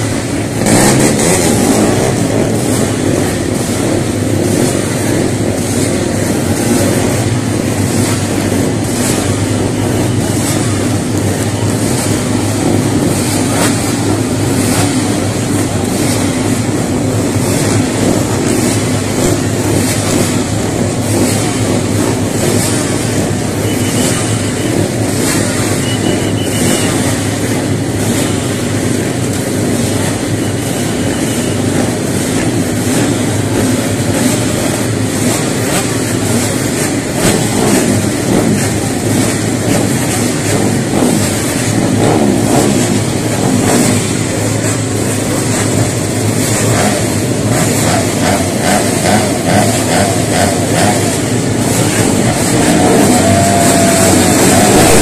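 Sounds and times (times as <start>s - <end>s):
racing motorcycle engines droning: 0.0s - 55.0s.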